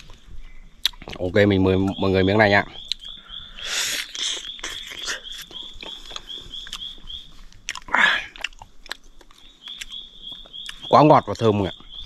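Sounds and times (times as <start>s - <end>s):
high chirping call: 0.3s - 7.4s, 9.3s - 12.0s
wet chewing: 0.8s - 1.3s, 2.8s - 10.9s
loud breathy sound: 3.2s - 4.4s.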